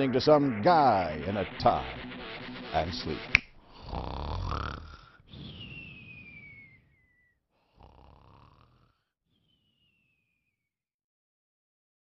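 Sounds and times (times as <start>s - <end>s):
person snoring: 3.6s - 5.3s, 7.6s - 9.1s
whistle on the breath out: 5.3s - 7.4s, 9.3s - 10.7s.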